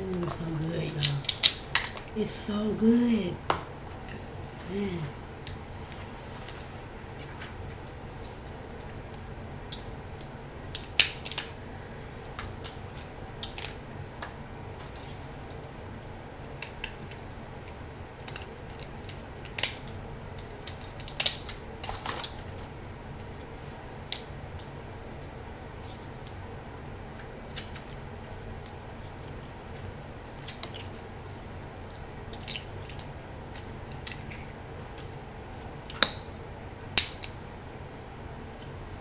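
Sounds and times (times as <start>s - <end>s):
steady low hum: 0.0s - 39.0s
crab shells cracking: 1.1s - 2.1s, 9.7s - 11.5s, 12.4s - 13.8s, 16.6s - 22.4s, 31.9s - 34.3s.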